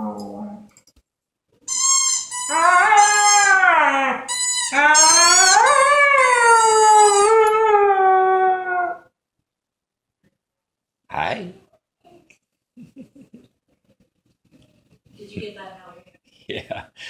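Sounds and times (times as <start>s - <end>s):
dog howling: 0.0s - 0.7s, 2.5s - 9.1s
squeaky toy squeaks: 1.7s - 3.6s, 4.3s - 7.3s.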